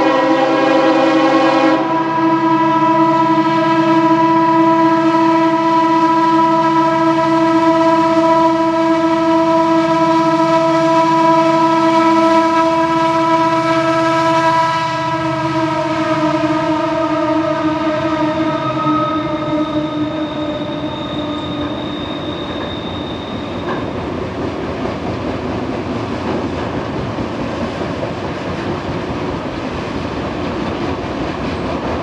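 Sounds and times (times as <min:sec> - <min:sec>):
locomotive air horn: 0:00.0 - 0:23.9.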